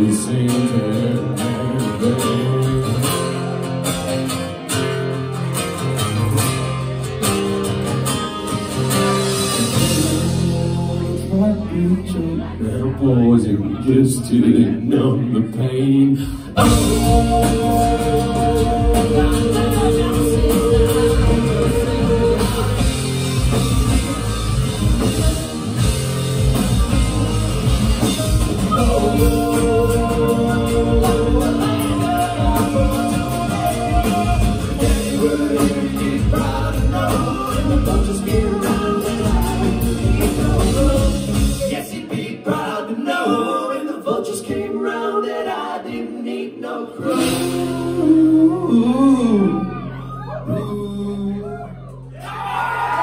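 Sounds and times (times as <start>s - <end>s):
live band playing: 0.0s - 14.8s, 16.2s - 43.4s, 46.6s - 52.2s
acoustic and electric guitars: 0.0s - 43.4s
driving drum beat: 8.9s - 11.4s, 16.6s - 42.4s, 47.0s - 48.3s
person singing long notes: 16.0s - 23.1s, 28.0s - 41.7s.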